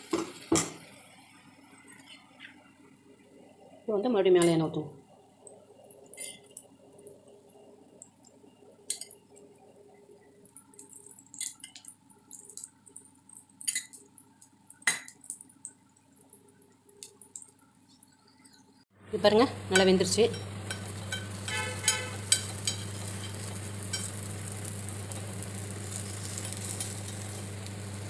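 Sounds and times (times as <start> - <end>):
faint steady hum: 0.6 - 28.0
hot oil popping and crackling: 5.4 - 18.6, 19.2 - 28.0.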